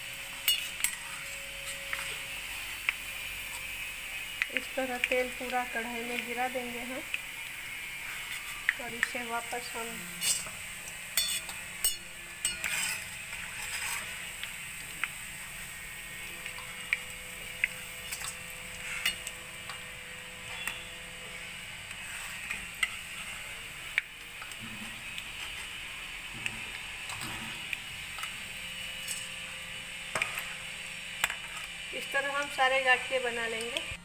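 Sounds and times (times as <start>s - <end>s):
food sizzling in hot oil: 0.0s - 34.0s
metal utensils clinking on steel: 0.4s - 2.2s, 8.3s - 10.6s, 11.2s - 14.2s, 18.0s - 19.9s, 29.0s - 29.3s.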